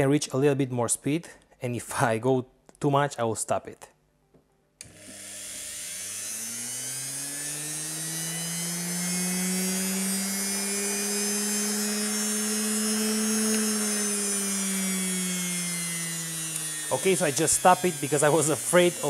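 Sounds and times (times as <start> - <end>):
electric motor humming: 4.8 - 19.0.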